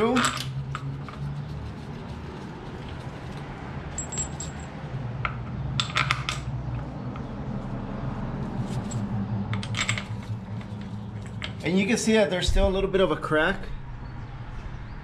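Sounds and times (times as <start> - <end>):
metal bolts clinking: 0.0 - 0.9, 3.9 - 4.7, 5.3 - 6.8, 8.8 - 11.7.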